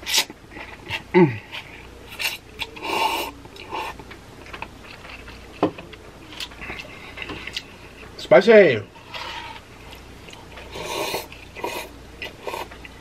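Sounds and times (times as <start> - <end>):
chewing with mouth smacks: 0.1 - 8.2, 9.8 - 13.0
noodle slurping: 10.7 - 12.7.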